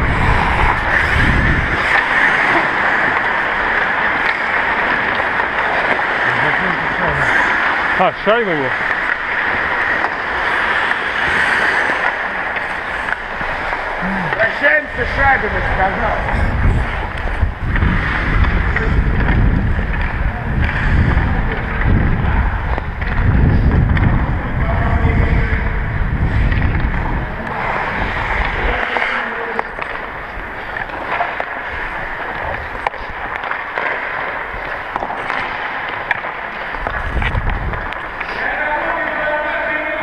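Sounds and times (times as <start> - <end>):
wind buffeting microphone: 0.0 - 5.4, 12.3 - 31.0, 36.8 - 38.2
skate blades hissing on ice: 0.1 - 2.5.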